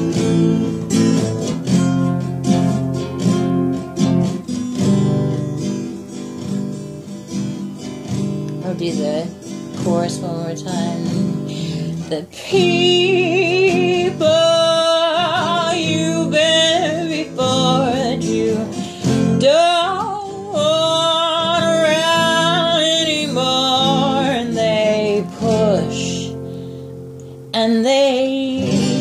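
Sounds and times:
guitar accompaniment: 0.0 - 29.0
solo voice singing: 12.0 - 26.4.

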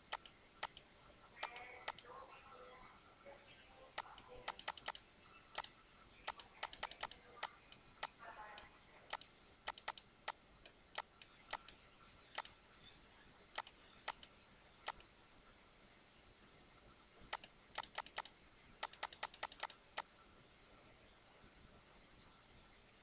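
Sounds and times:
computer mouse clicking: 0.0 - 2.1, 3.9 - 12.6, 13.5 - 15.1, 17.3 - 20.1.

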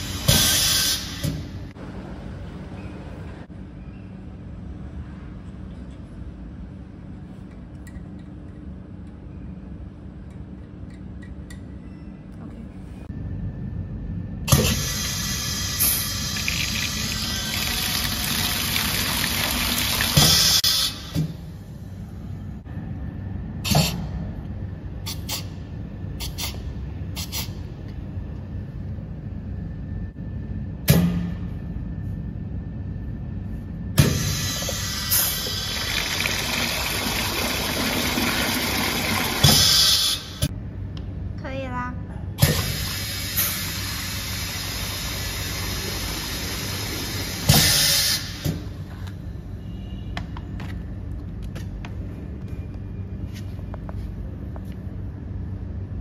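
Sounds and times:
air valve hiss: 0.0 - 1.4, 42.6 - 48.5
short sharp air puffs: 0.0 - 1.5, 25.0 - 25.6, 26.2 - 27.7, 47.4 - 48.6
steady low hum: 1.2 - 18.1, 21.2 - 39.5, 40.4 - 47.4, 48.4 - 56.0.

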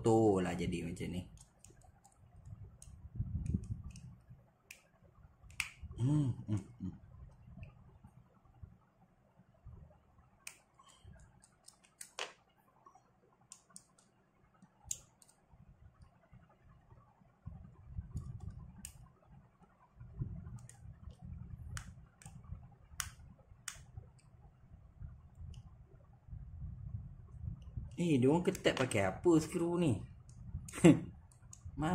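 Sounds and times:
low rumble of hand movement: 2.2 - 4.5, 15.6 - 28.0.

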